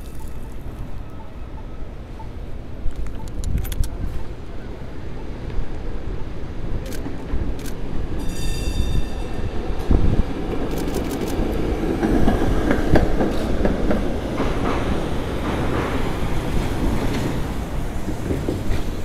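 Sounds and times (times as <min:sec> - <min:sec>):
streetcar rumbling on rails: 0:00.0 - 0:19.0
high wheel squeal: 0:08.2 - 0:09.7
camera shutter clicks: 0:10.7 - 0:11.4.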